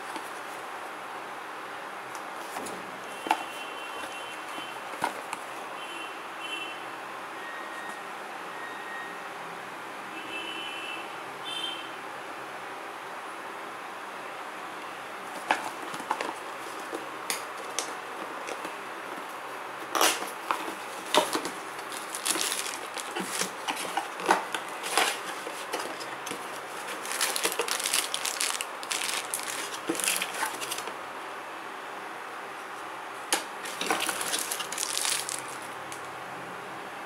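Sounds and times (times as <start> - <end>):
plastic wrap crinkling: 19.9 - 30.9, 33.4 - 36.0.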